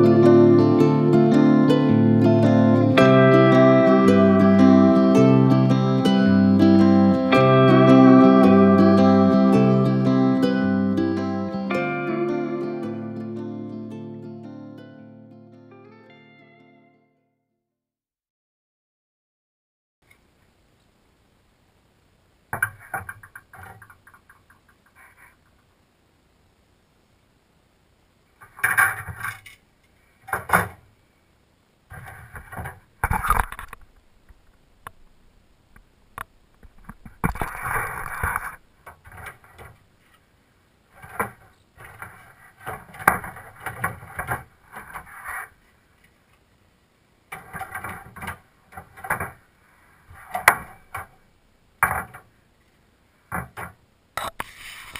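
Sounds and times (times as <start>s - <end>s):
plastic panels scraping and clacking: 41.0s - 45.5s, 47.3s - 49.4s.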